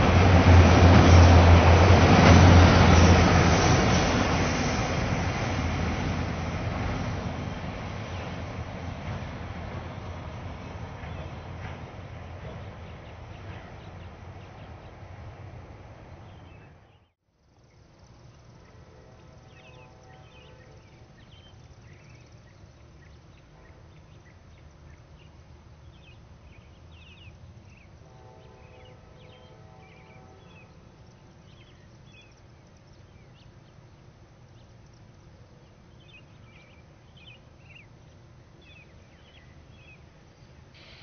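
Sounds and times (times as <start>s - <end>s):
birds chirping: 9.9s - 18.8s.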